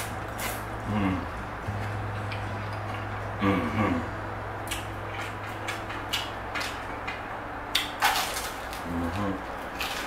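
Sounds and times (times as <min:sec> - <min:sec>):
steady low hum: 0:00.0 - 0:10.0
person humming mm: 0:00.8 - 0:02.2, 0:03.3 - 0:04.2.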